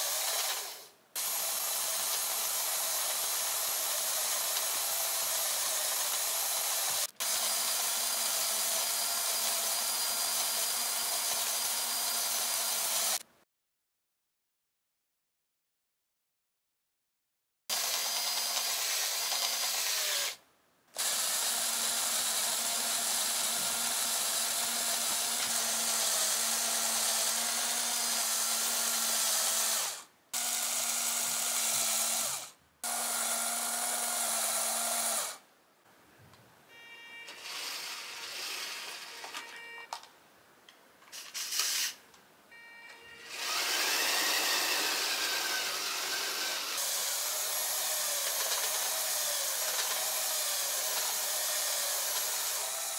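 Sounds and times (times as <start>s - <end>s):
small electric motors whining: 0.0s - 13.2s, 43.2s - 52.9s.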